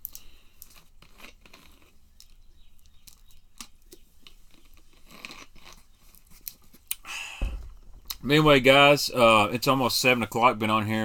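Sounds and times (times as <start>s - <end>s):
plastic bottle crinkling: 4.4s - 8.4s.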